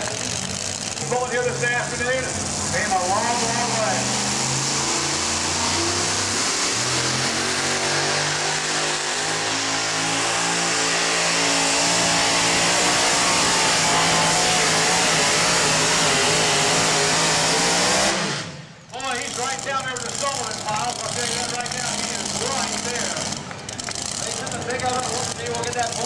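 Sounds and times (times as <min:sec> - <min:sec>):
truck engine running flat out: 0:00.0 - 0:26.0.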